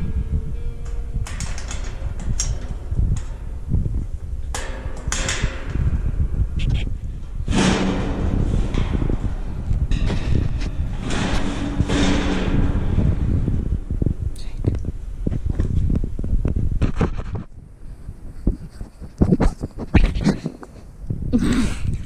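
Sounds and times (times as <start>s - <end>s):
low handling rumble: 0.0s - 18.3s
metal cage doors rattling: 0.8s - 6.6s, 7.3s - 14.3s.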